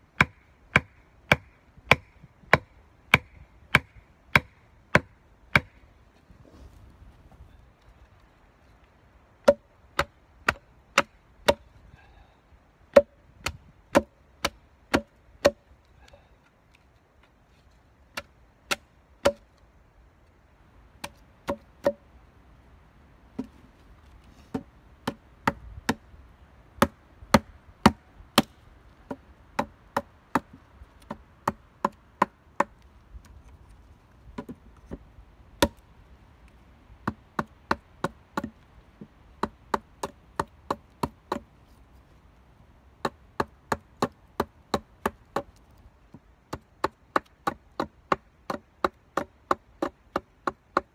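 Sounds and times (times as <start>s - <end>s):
hatchet striking wood: 0.2s - 5.8s, 9.4s - 11.6s, 12.9s - 15.7s, 18.1s - 19.5s, 21.0s - 22.0s, 24.5s - 26.0s, 26.8s - 32.8s, 35.6s - 35.8s, 37.0s - 38.6s, 39.4s - 41.5s, 43.0s - 45.6s, 46.5s - 50.9s.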